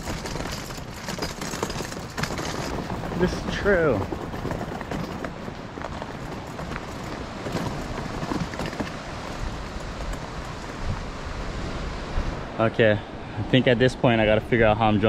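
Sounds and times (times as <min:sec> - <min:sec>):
wagon wheels rattling on dirt: 0:00.0 - 0:11.0
wind noise on microphone: 0:00.0 - 0:12.6.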